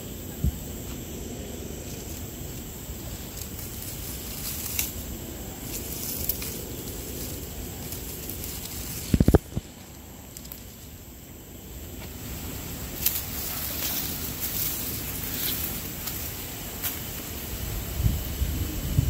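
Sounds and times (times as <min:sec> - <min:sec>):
wood fire rumbling and hissing: 0:00.0 - 0:19.0
fire crackles: 0:01.8 - 0:19.0.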